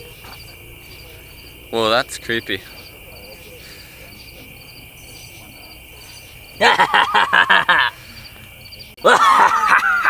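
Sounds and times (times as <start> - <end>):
crickets chirping: 0.0 - 10.0
insect trill: 0.0 - 10.0
person laughing: 6.6 - 8.0, 9.0 - 10.0.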